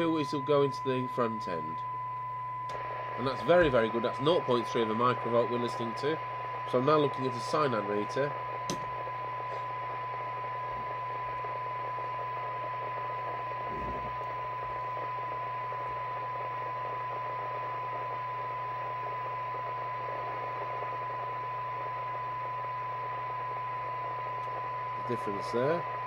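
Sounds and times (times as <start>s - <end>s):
radio test tone: 0.0s - 26.0s
receiver hiss: 0.0s - 26.0s.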